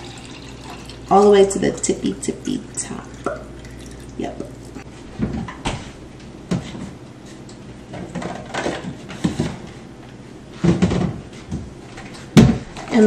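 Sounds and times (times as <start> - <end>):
wooden cabinet knocks and clatters: 10.6 - 11.6, 12.4 - 12.8.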